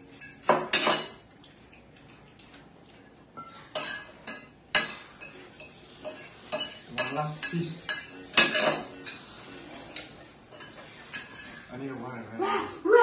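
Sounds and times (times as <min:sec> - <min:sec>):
metal forks clinking on plates: 0:00.0 - 0:01.2, 0:03.4 - 0:09.2, 0:09.9 - 0:11.7.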